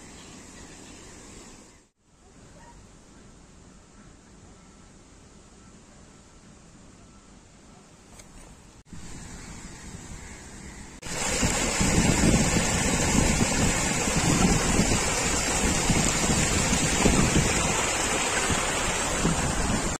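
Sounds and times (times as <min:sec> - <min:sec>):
water rushing down rocky cascade: 0:11.0 - 0:20.0.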